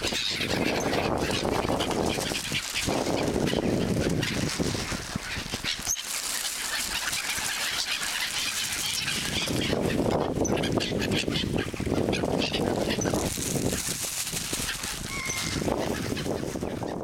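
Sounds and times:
waterbird flock calling: 0.0 - 17.0.

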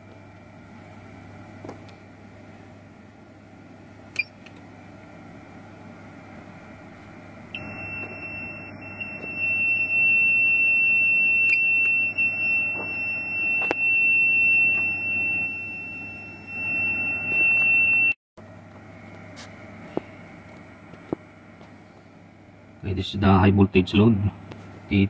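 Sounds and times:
low steady hum: 0.0 - 25.0
high-pitched alarm beep tone: 7.5 - 18.2.

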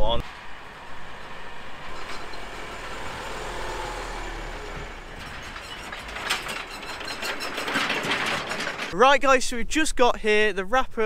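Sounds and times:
truck engine humming: 0.0 - 9.0.

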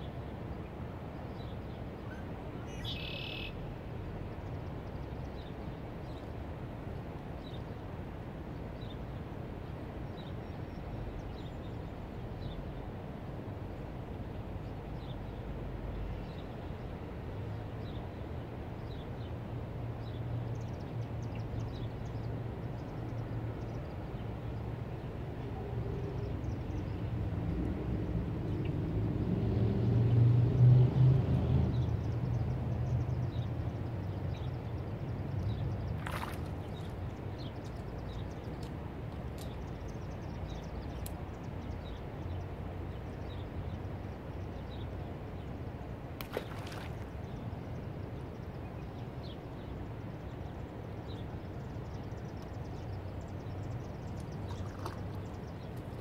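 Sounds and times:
low engine hum: 22.7 - 56.0.

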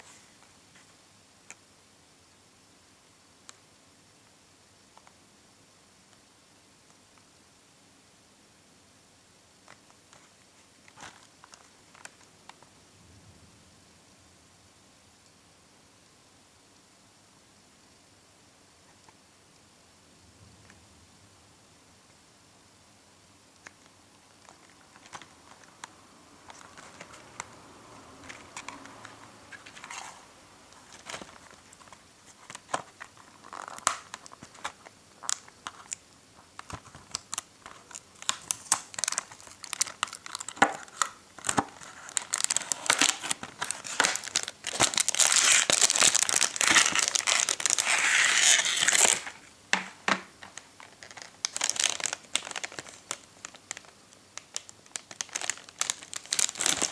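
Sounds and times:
plastic wrapper crinkling: 24.4 - 27.6, 28.2 - 56.9.

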